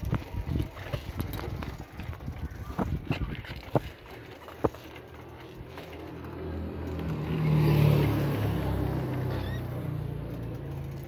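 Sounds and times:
motor engine passing by: 5.1s - 11.0s.

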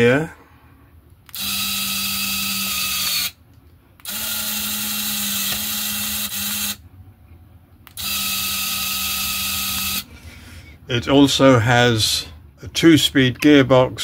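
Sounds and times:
electric motor and gears whining: 1.2s - 3.4s, 4.0s - 6.8s, 7.9s - 10.1s.

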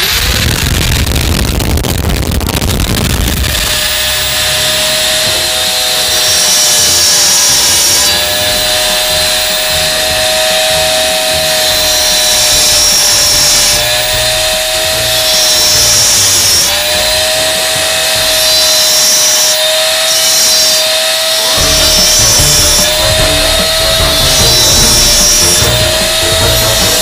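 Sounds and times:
cut-off tool motor whine: 0.0s - 1.3s, 2.8s - 27.0s
abrasive disc grinding metal: 3.3s - 27.0s.

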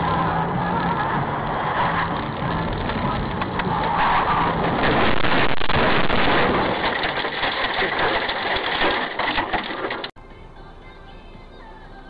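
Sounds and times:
car engine hum: 0.0s - 12.0s
road and wind noise: 0.0s - 12.0s.

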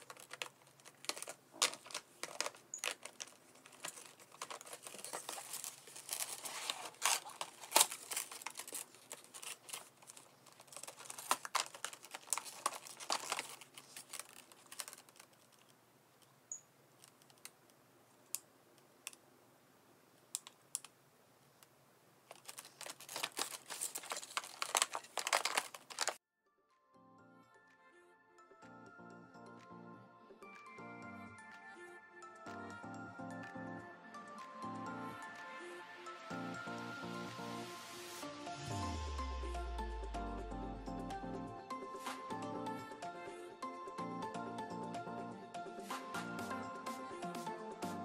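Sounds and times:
plastic wrap and paper crinkling: 0.0s - 15.8s, 22.2s - 26.2s.

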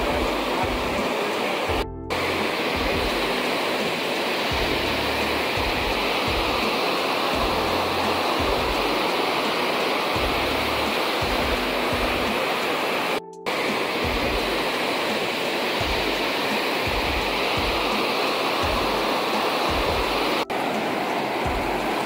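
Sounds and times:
flooded river roaring: 0.0s - 22.0s.

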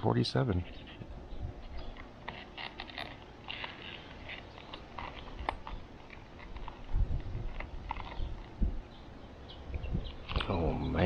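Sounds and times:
dull low thumps: 6.6s - 9.0s, 9.6s - 10.5s.

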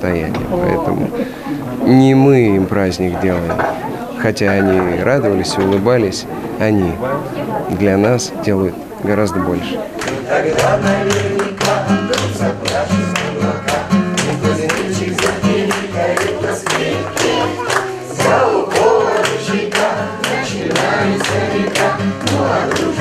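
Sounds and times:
acoustic guitar strumming: 0.0s - 23.0s
group of voices singing: 0.3s - 23.0s
hand claps: 10.0s - 23.0s.

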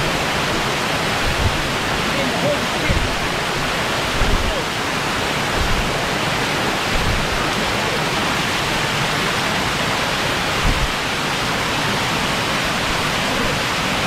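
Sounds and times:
waterfall rushing over rock: 0.0s - 14.0s
low thuds: 1.1s - 2.0s, 2.8s - 4.6s, 5.5s - 6.0s, 6.9s - 7.4s, 10.6s - 11.0s.

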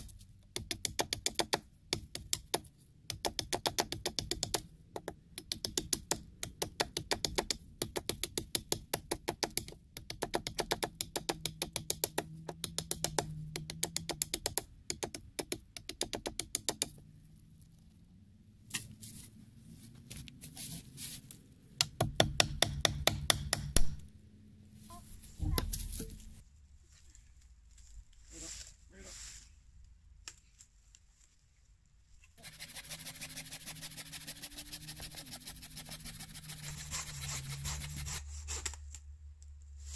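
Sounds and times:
knife chopping wood: 21.8s - 24.0s.

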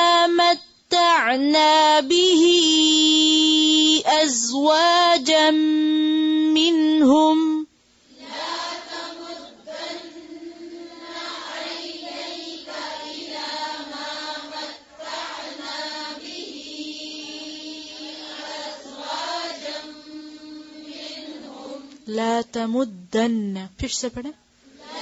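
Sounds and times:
woman reciting held note: 0.0s - 7.7s, 16.4s - 25.0s
group of voices chanting: 8.1s - 21.9s, 24.7s - 25.0s.

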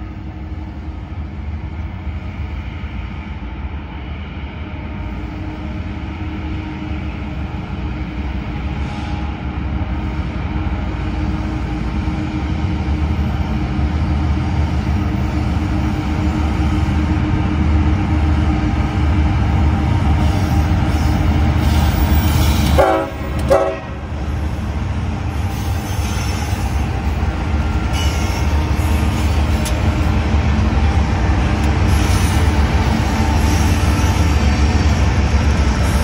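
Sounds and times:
diesel locomotive engines droning: 0.0s - 36.0s
locomotive horn blasts: 22.6s - 24.0s.

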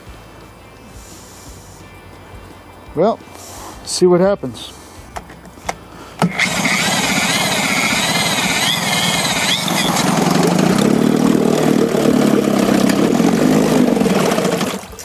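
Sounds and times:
outboard motor running unevenly: 6.1s - 15.0s.

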